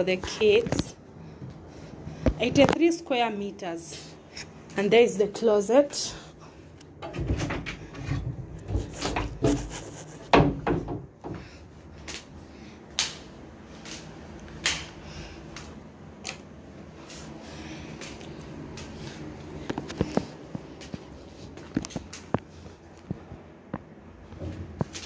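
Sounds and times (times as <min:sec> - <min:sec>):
wardrobe door knocking and rubbing: 0:07.0 - 0:11.4.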